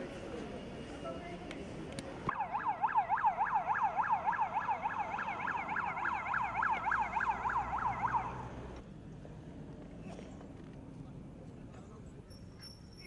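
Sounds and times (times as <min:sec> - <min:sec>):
electronic siren yelping: 0:02.3 - 0:08.5.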